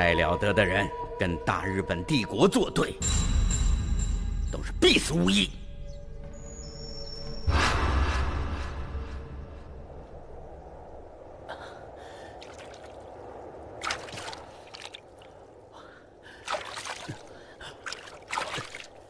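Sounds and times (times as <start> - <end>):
water splashing: 12.2 - 15.5, 16.3 - 19.0.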